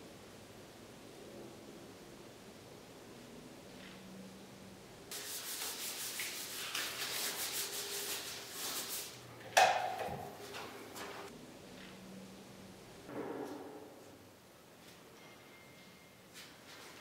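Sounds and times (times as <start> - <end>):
gloved hands rubbing: 5.1 - 9.2.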